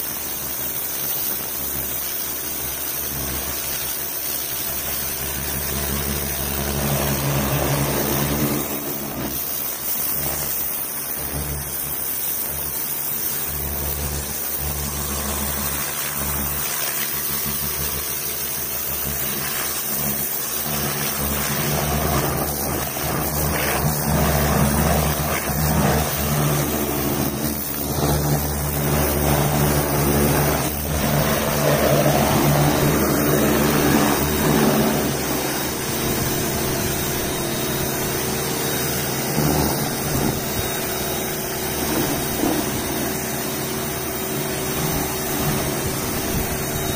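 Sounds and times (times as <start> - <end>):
high-pressure spray hissing: 0.0 - 46.9
pressure washer motor hum: 0.0 - 46.9.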